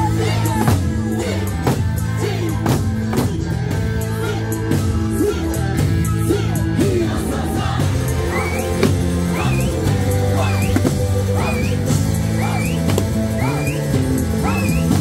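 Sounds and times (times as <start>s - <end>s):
folk music with singing: 0.0s - 15.0s
drum strikes: 8.7s - 9.5s, 12.5s - 13.8s.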